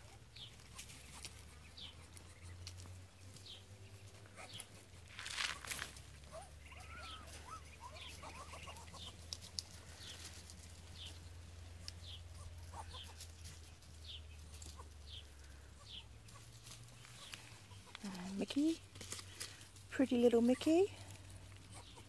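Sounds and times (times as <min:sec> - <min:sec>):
duck squeaking: 0:06.3 - 0:09.2, 0:11.9 - 0:13.2.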